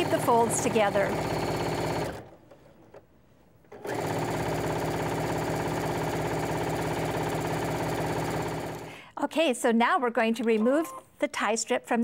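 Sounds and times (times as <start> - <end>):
sewing machine stitching: 0.0 - 3.0, 3.7 - 8.9.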